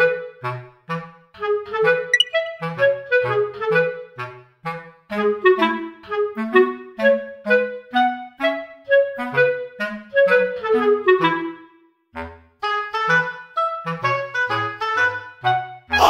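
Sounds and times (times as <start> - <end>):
melody of short notes: 2.2 - 2.7.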